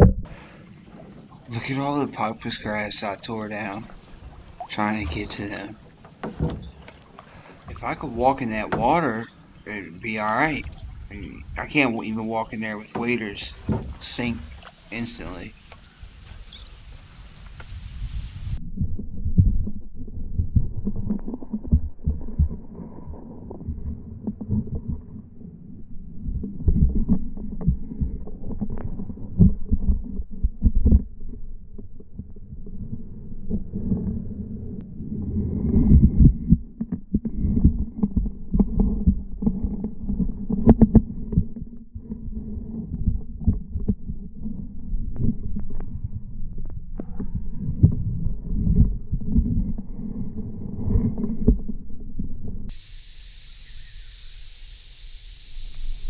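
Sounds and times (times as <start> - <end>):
muffled underwater rumble: 0.0 - 15.6, 17.6 - 52.8
underwater knocks and thumps: 0.0 - 15.8, 18.8 - 22.7, 35.9 - 46.0, 50.9 - 51.8.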